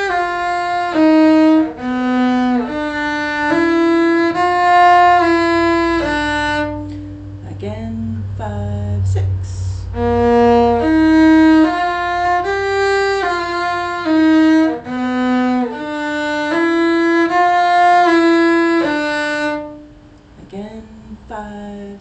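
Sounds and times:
cello held notes: 0.0 - 21.8.

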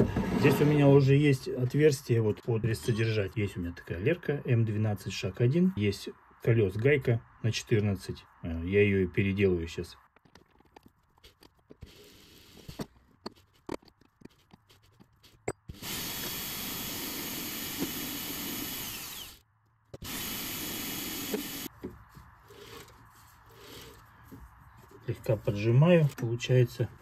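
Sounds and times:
power tool motor running: 15.7 - 19.4, 20.0 - 21.7.

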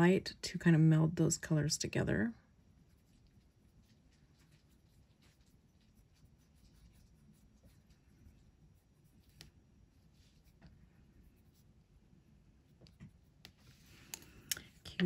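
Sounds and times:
pencil scratching on paper: 2.9 - 11.8.

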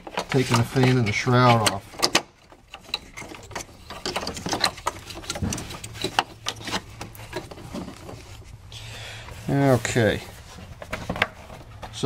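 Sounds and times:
connectors clicking and rattling: 0.0 - 12.0.

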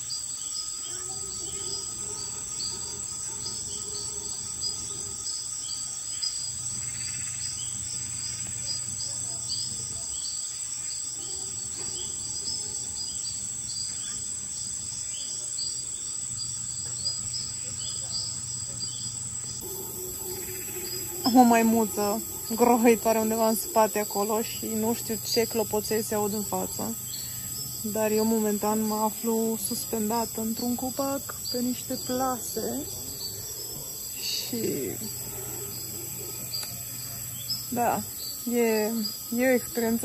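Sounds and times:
high insect drone: 0.0 - 40.0
howler monkey roaring: 19.6 - 27.8, 31.3 - 38.2.

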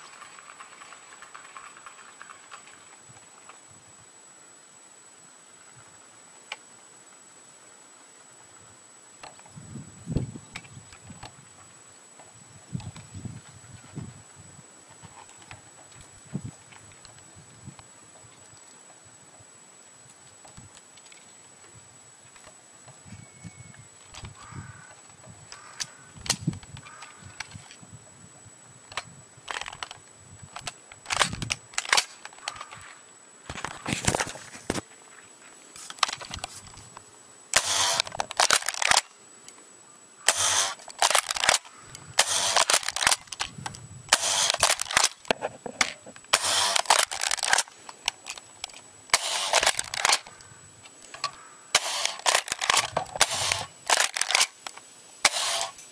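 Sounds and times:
airsoft shotgun shot snapping: 51.8 - 54.5, 55.3 - 55.8.

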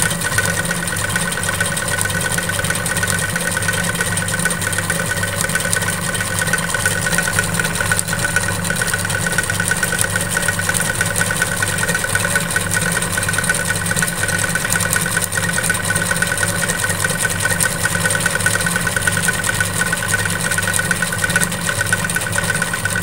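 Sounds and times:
sewing machine stitching fast: 0.0 - 23.0.

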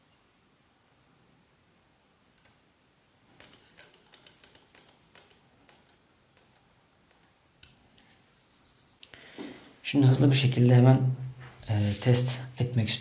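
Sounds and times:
screw being tightened clicking: 3.4 - 7.8.

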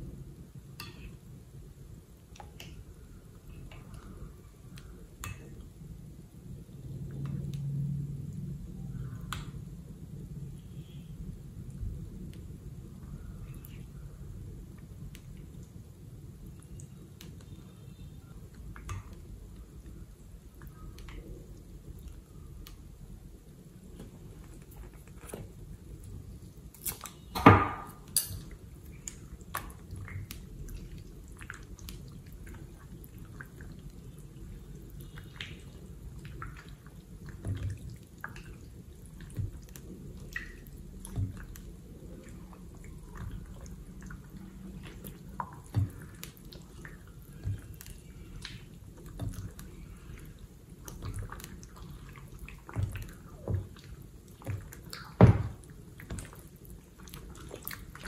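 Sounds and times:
slime squelching and popping: 28.9 - 58.0.

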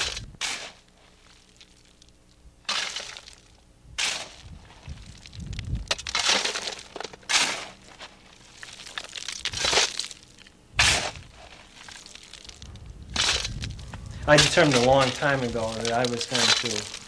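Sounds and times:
shovel scooping coal: 0.0 - 2.0, 2.6 - 17.0
coal rattling into bucket: 5.9 - 7.8, 14.3 - 17.0.

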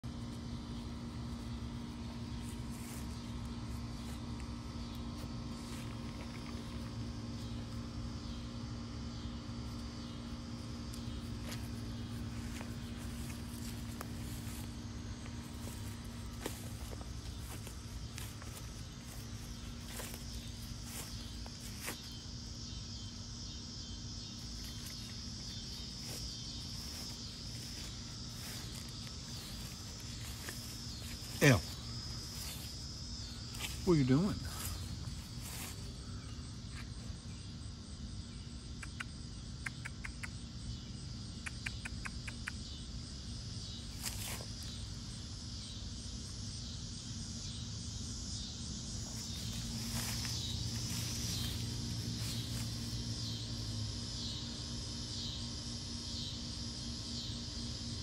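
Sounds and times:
steady low rumble: 0.0 - 38.0, 48.1 - 54.1
constant hum: 0.0 - 58.0
insects trilling: 0.0 - 58.0.

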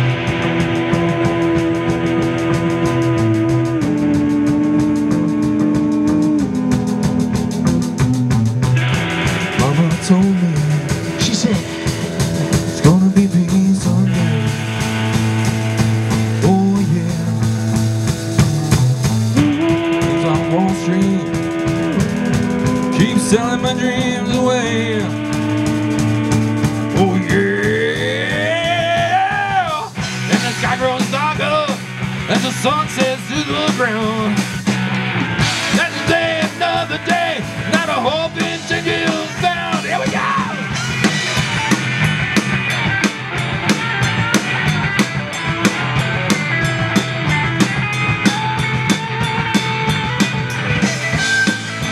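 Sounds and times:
guitar note gliding upward: 0.0 - 12.7, 18.7 - 28.4
live rock band playing: 0.0 - 51.9.

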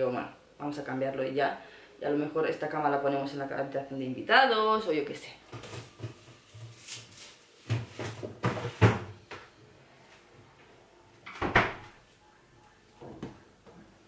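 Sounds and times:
household knocks and clatters: 5.5 - 6.8, 7.6 - 9.2.

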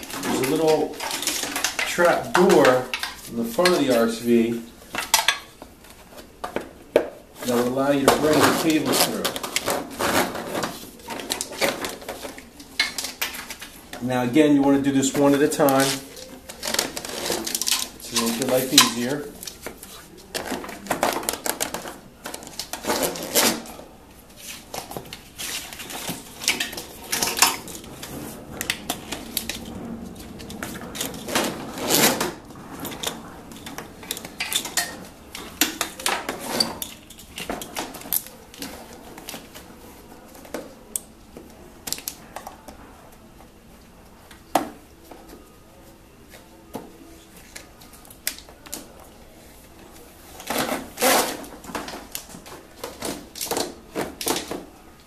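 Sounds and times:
wiring harness clicking and rattling: 0.0 - 4.3, 15.1 - 23.7.

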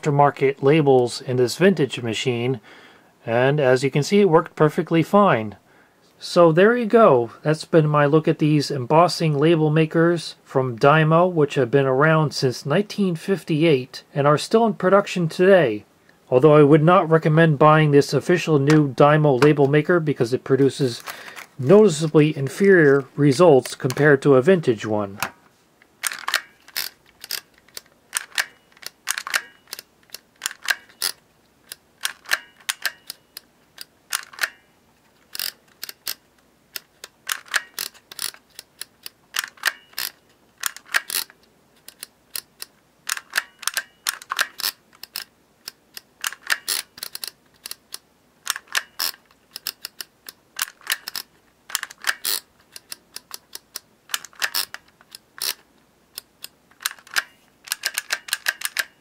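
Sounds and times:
label maker plastic clicks: 35.3 - 59.0.

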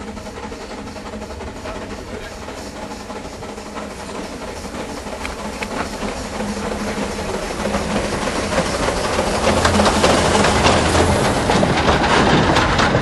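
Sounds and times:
steam locomotive exhaust: 0.0 - 13.0.

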